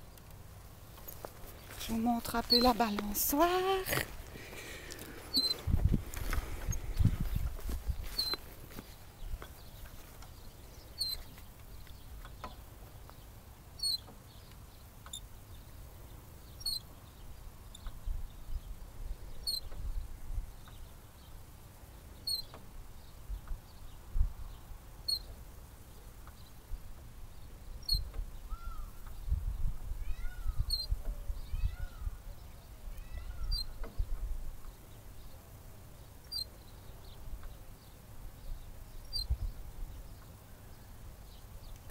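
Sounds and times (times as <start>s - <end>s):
playground swing squeaking: 5.0s - 12.8s, 13.8s - 15.8s, 16.4s - 19.8s, 22.1s - 22.8s, 25.0s - 25.4s, 26.2s - 29.2s, 30.0s - 35.0s, 36.3s - 36.6s.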